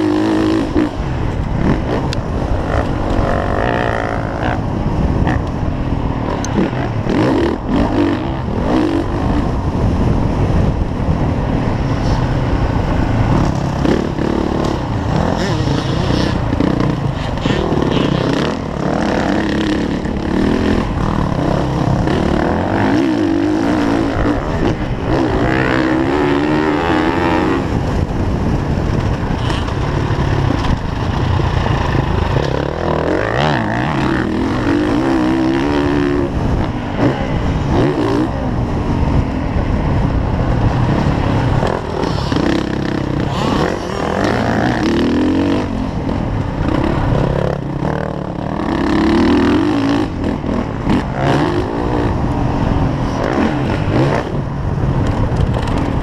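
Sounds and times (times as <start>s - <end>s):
dirt bike engine revving: 0.0s - 10.1s, 11.9s - 39.2s, 39.8s - 54.5s.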